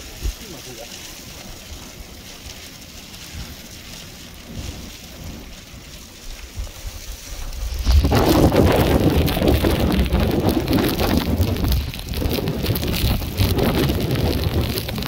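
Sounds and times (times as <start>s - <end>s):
snow pellets pattering on car: 0.0s - 15.0s
wind gusting on microphone: 0.0s - 15.0s.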